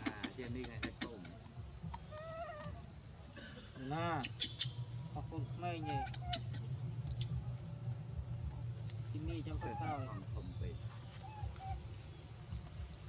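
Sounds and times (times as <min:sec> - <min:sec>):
crickets trilling: 0:00.0 - 0:13.0
low rumble: 0:04.8 - 0:09.6.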